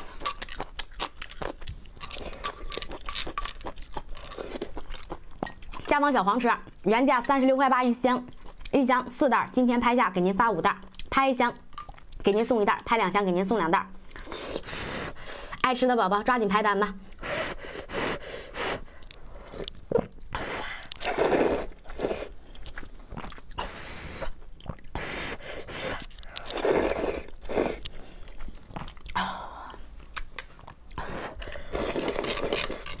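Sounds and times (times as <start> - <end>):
person chewing with mouth clicks: 0.0 - 5.9, 19.0 - 33.0
person slurping noodles: 19.5 - 22.4, 23.6 - 27.9, 31.0 - 33.0.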